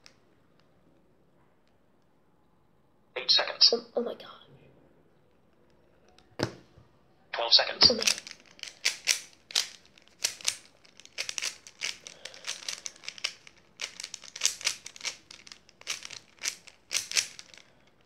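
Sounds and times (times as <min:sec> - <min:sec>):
plastic puzzle cube clacking: 0:07.9 - 0:18.0.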